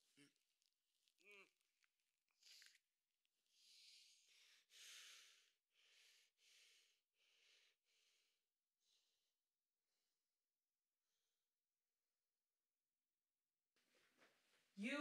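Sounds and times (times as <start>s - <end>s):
man breathing rapidly: 3.5s - 9.2s.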